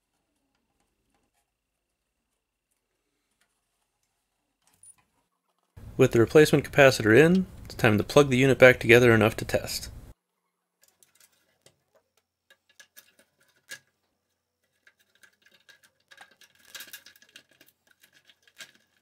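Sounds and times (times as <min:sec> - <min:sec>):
clicks and taps of handled plastic parts: 0:10.8 - 0:13.9.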